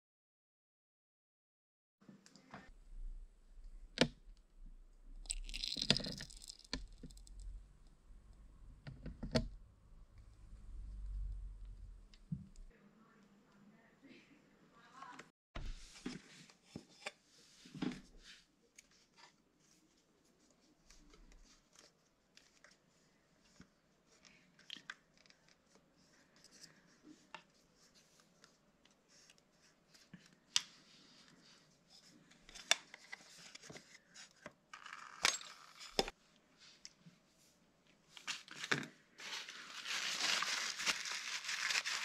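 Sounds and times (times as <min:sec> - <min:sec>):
plastic rustling: 0:05.2 - 0:07.6, 0:38.2 - 0:42.0.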